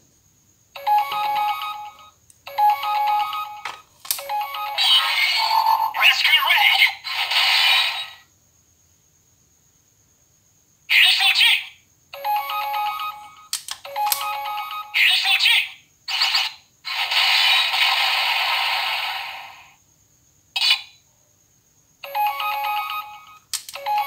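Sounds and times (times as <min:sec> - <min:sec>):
electronic beeping jingle: 0:00.8 - 0:06.0, 0:22.1 - 0:24.0.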